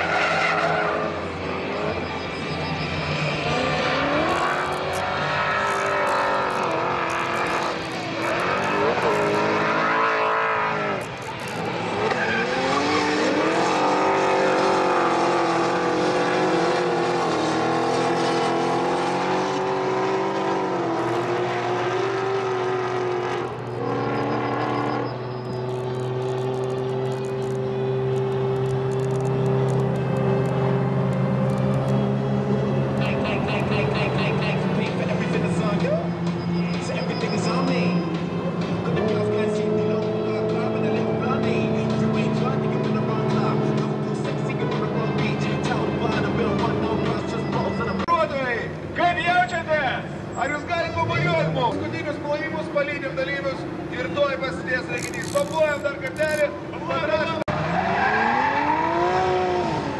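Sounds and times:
tyre squeal: 0.0 - 13.8, 23.7 - 30.6, 33.0 - 38.1, 54.8 - 56.5
car engines revving: 0.0 - 59.9.

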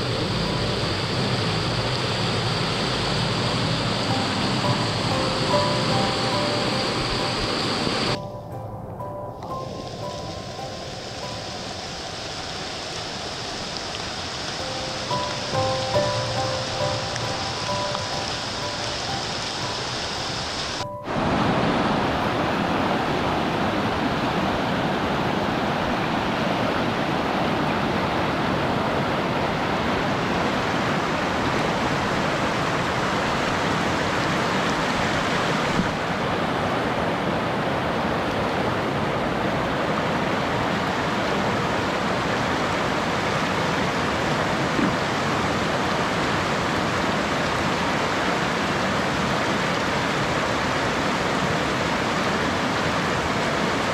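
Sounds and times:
water rushing through rapids: 0.0 - 8.2, 9.4 - 53.9
music: 0.0 - 12.7, 13.9 - 22.7.

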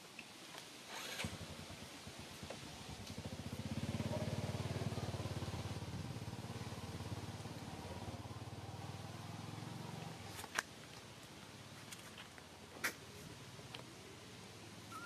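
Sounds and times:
small engine running: 0.9 - 1.7.

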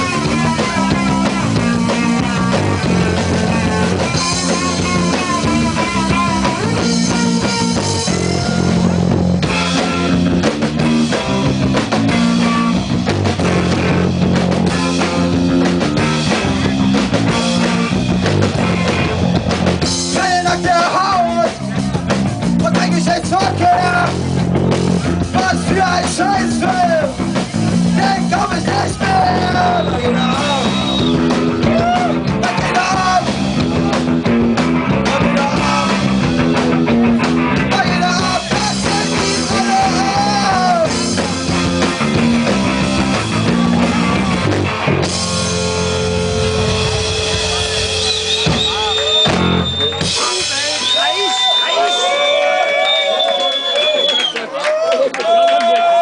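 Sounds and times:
punk band playing live: 0.0 - 56.0
person singing: 28.0 - 30.8, 35.0 - 36.2, 37.7 - 41.4.

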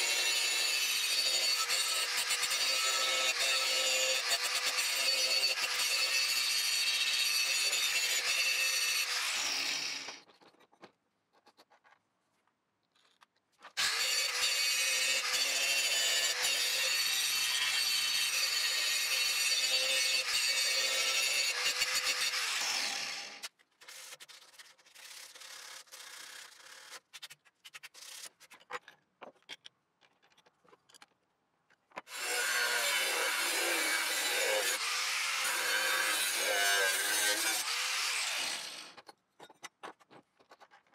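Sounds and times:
angle grinder grinding metal: 0.0 - 10.2, 13.8 - 23.4, 32.1 - 39.0.

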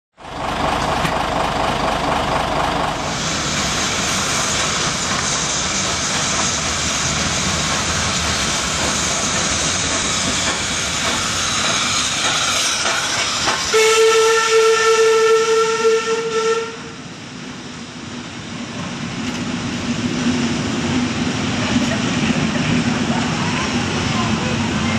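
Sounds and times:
steam locomotive hissing: 0.4 - 24.9
steam whistle: 13.7 - 17.0.

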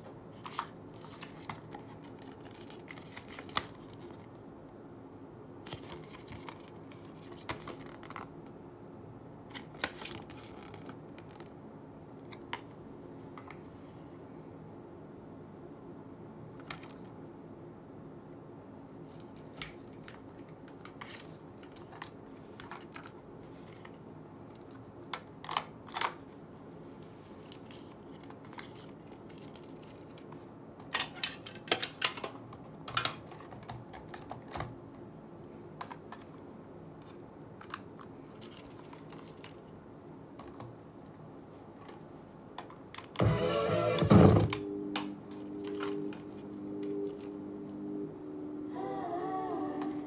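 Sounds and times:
plastic cassette tape clicks: 30.8 - 34.7.

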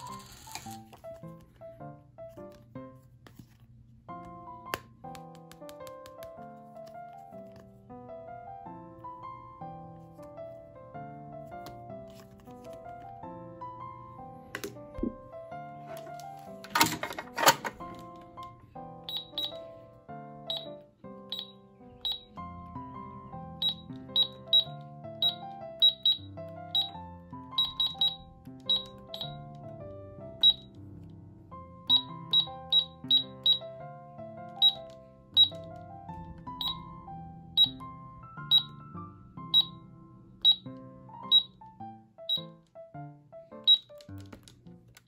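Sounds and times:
background music: 0.0 - 45.0
toy keypad beeping: 19.0 - 19.7, 20.5 - 22.5, 23.5 - 29.6, 30.4 - 30.8, 31.8 - 33.8, 34.5 - 35.8, 36.5 - 36.9, 37.6 - 37.8, 38.4 - 38.8, 39.5 - 39.8, 40.4 - 40.7, 41.3 - 41.6, 42.3 - 42.5, 43.6 - 44.1.

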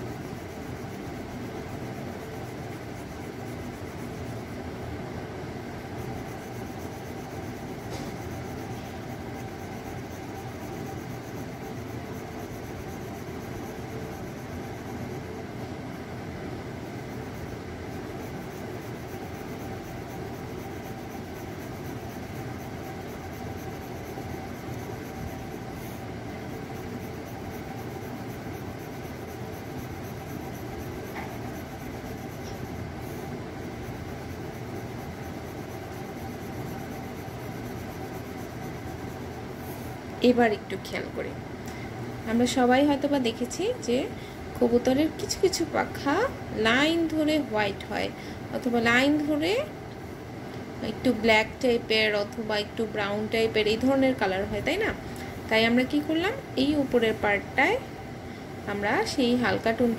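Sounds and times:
pencil scratching on paper: 0.0 - 4.6, 17.1 - 39.9.

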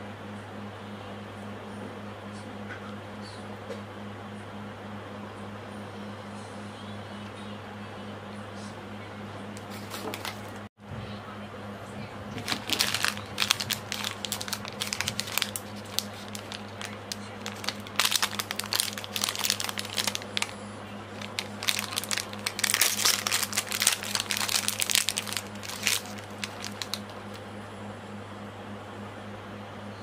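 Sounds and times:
steady low hum: 0.0 - 30.0
plastic wrapper crinkling: 9.6 - 10.6, 12.4 - 27.4.

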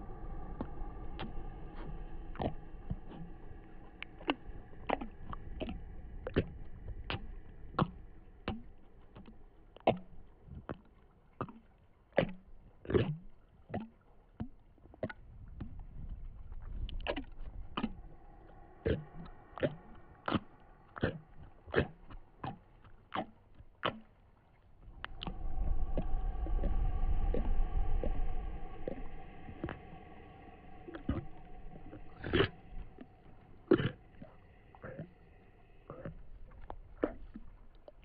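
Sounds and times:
sustained droning tone: 0.0 - 10.5, 17.2 - 22.9, 24.8 - 38.0
low rumble: 0.0 - 11.4, 15.2 - 23.8, 24.7 - 38.0.

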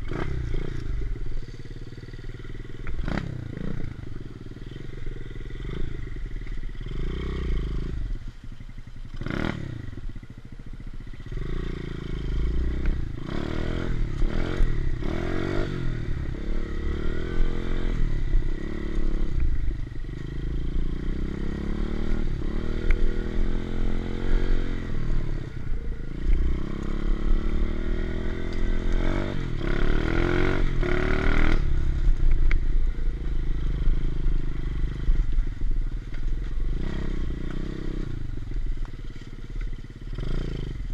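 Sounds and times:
motorbike engine revving: 0.0 - 8.2, 9.0 - 40.9.

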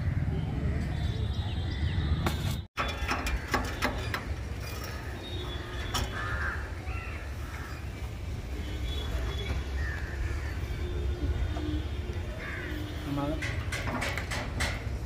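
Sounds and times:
crows cawing: 4.9 - 8.0, 9.8 - 10.7, 12.4 - 13.0
sharp knocks: 13.4 - 15.0.

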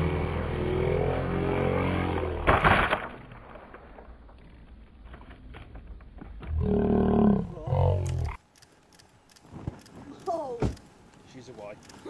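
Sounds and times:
loud crash: 2.4 - 4.1.

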